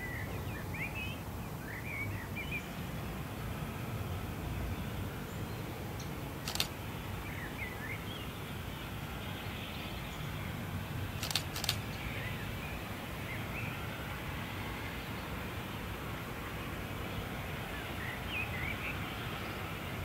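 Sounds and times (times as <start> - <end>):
birds chirping: 5.5 - 8.4, 11.2 - 13.8
sharp click: 6.4 - 6.7, 11.2 - 11.8.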